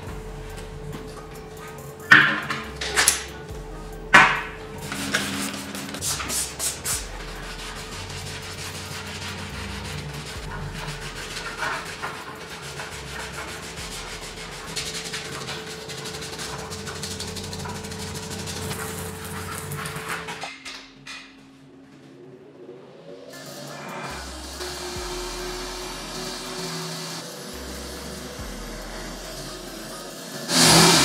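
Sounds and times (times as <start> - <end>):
abrasive rubbing on metal: 0.0 - 20.5.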